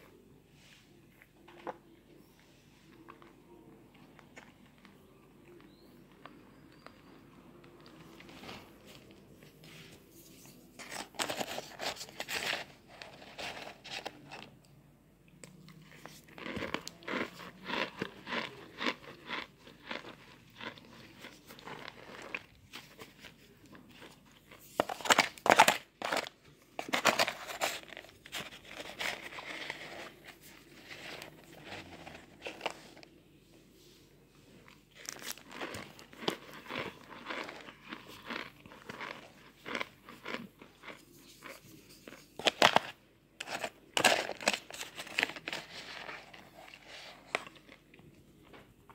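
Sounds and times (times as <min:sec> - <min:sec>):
cornstarch crunching: 0:10.4 - 0:14.5, 0:15.6 - 0:33.0, 0:34.9 - 0:48.6.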